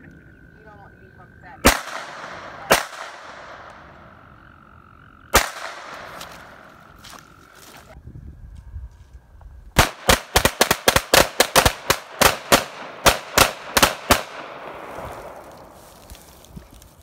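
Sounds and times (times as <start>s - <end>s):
rapid pistol gunfire: 1.6s - 3.7s, 5.3s - 6.2s, 9.8s - 14.8s
gunshot echo: 1.6s - 4.0s, 5.3s - 6.7s.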